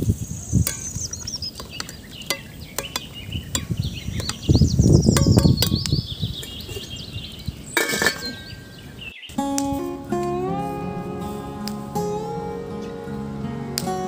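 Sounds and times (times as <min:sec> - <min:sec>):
birds chirping: 0:00.0 - 0:14.0
metal spatula clinking on pot: 0:01.6 - 0:04.4, 0:07.8 - 0:08.7
metal lid clattering onto pot: 0:07.8 - 0:08.6.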